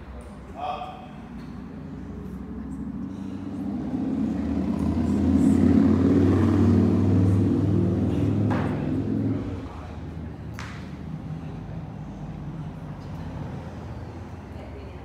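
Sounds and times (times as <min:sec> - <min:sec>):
passing vehicle engine rumble: 0:00.0 - 0:15.0.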